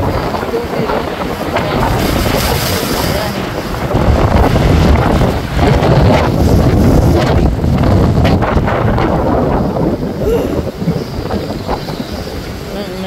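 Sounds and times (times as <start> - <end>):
waves splashing on rocks: 0.0 - 10.9
strong wind buffeting microphone: 0.0 - 13.0.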